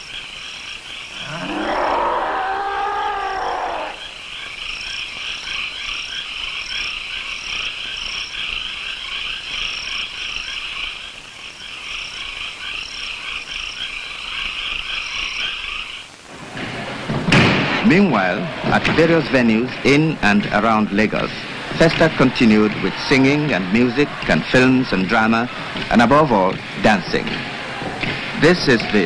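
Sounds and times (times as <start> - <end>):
chorus of animal calls: 0.4 - 17.1.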